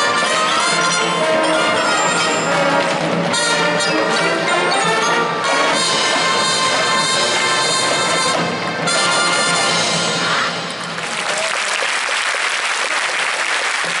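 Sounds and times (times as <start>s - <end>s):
brass band sustained chord: 0.0s - 10.4s
crowd applause: 10.7s - 14.0s.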